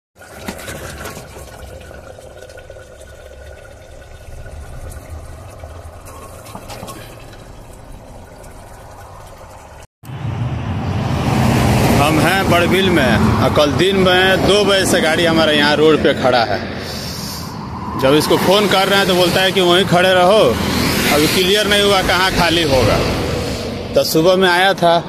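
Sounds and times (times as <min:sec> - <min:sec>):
curry simmering and bubbling: 0:00.2 - 0:09.9
road noise: 0:00.2 - 0:25.0
vehicle approaching: 0:00.9 - 0:25.0.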